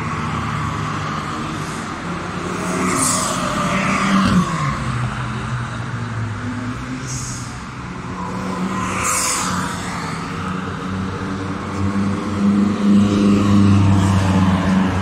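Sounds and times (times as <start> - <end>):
sports cars driving past: 0.0 - 15.0.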